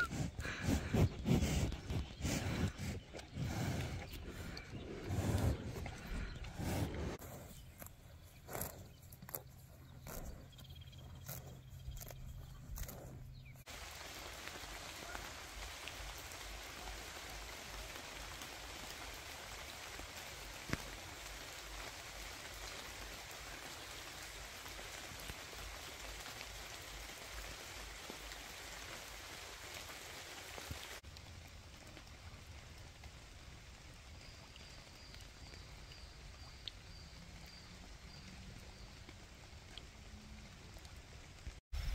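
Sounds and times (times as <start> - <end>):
rain falling on leaves: 13.7 - 41.6
sharp drip tick: 34.5 - 37.6.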